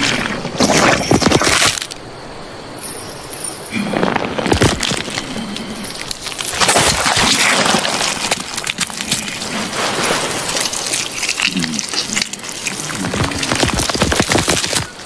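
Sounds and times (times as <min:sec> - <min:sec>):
wet clicks and crackles: 0:04.5 - 0:15.0
blood pouring and splattering: 0:06.1 - 0:15.0.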